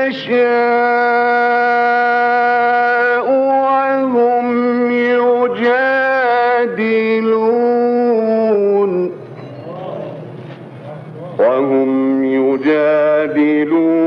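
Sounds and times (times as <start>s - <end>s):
man reciting melodically: 0.0s - 9.2s, 11.3s - 14.0s.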